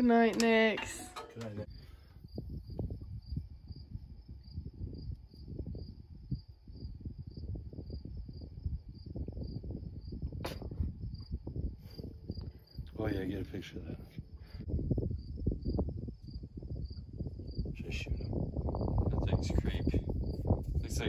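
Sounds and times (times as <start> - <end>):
cricket chirping: 1.6 - 21.0
low rumble on microphone: 14.0 - 21.0.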